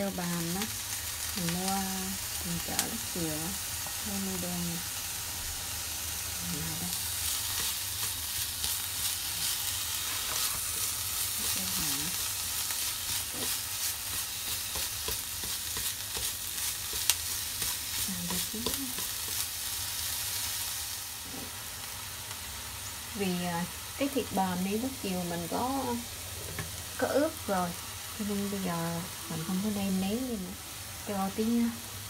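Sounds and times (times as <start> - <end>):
meat sizzling in a frying pan: 0.0 - 32.0
chopsticks tapping a pan: 13.3 - 19.5.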